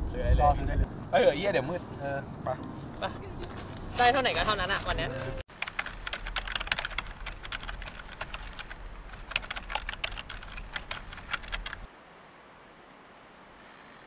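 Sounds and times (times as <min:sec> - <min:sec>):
wind rumble on microphone: 0:00.0 - 0:01.1.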